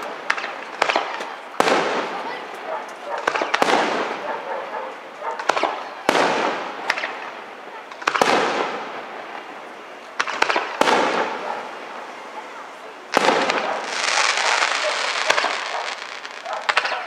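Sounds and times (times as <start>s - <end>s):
firework shells bursting: 13.2s - 17.0s.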